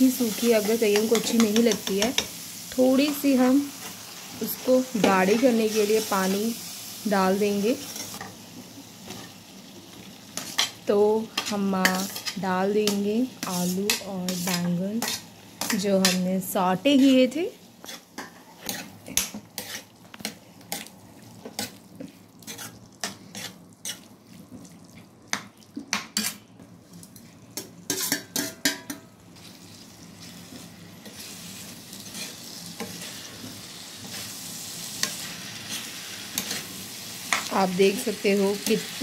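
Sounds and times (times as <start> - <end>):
frying sizzle: 0.0 - 39.0
spoon scraping a metal pan: 10.4 - 16.2, 17.8 - 19.9, 22.4 - 24.1, 27.9 - 29.0.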